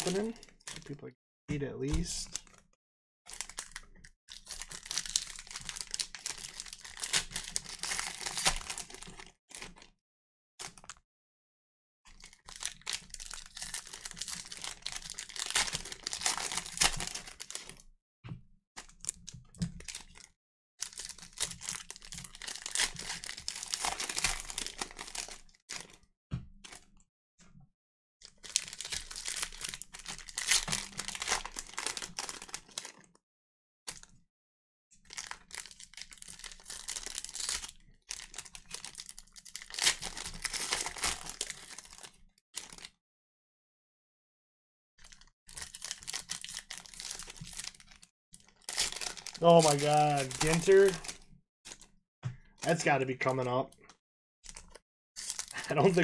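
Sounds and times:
card pack wrappers tearing and crinkling: 3.3s - 9.9s, 12.2s - 17.8s, 18.8s - 26.0s, 28.3s - 33.1s, 35.1s - 42.9s, 45.0s - 51.9s, 54.5s - 56.0s.

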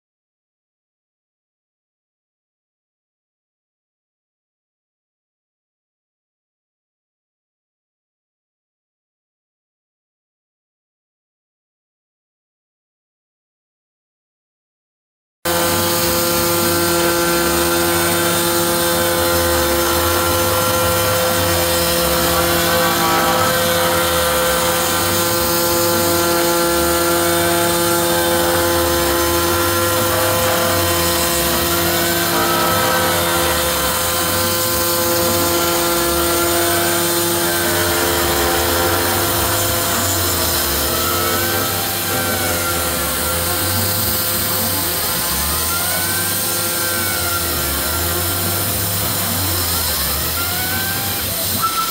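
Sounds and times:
compressed air hissing: 15.5s - 51.9s
router spindle whining while cutting metal: 15.5s - 51.9s.

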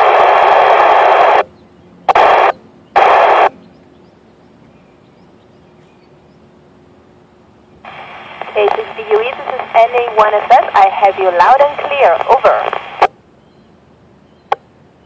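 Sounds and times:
radio static bursts: 0.0s - 1.4s, 2.1s - 3.5s, 7.8s - 13.1s.

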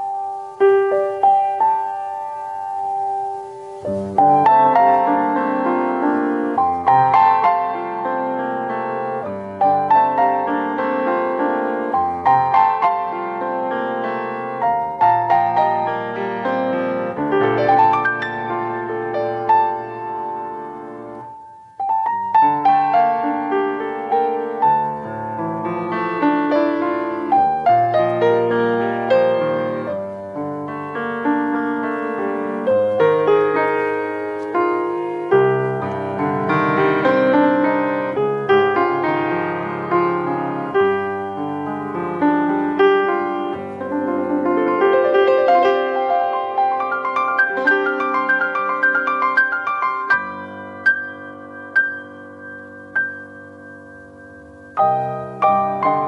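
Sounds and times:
solo grand piano: 0.0s - 56.0s.

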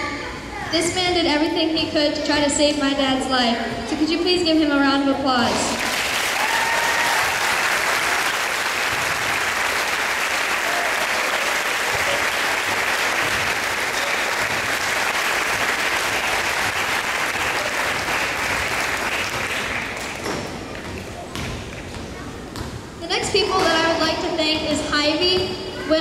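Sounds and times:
audience applauding: 5.8s - 20.2s.

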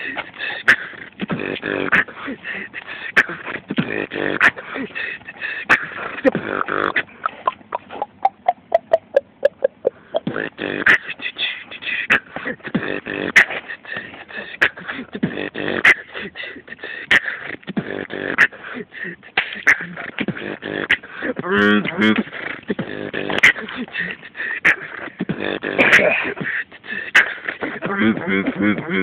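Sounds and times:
person beatboxing: 0.0s - 29.0s.

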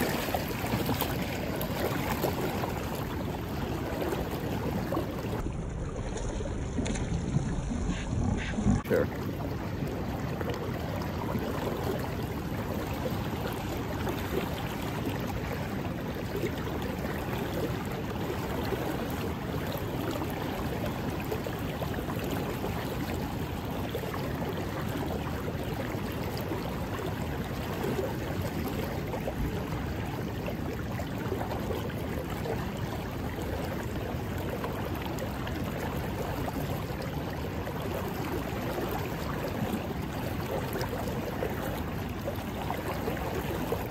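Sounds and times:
fast-flowing river rushing: 0.0s - 5.4s.

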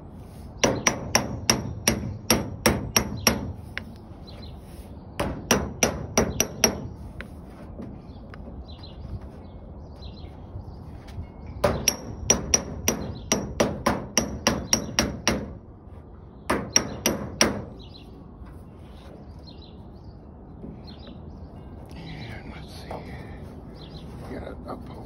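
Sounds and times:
hammer beating copper sheet: 0.6s - 3.8s, 5.2s - 7.0s, 11.6s - 15.6s, 16.5s - 17.8s.

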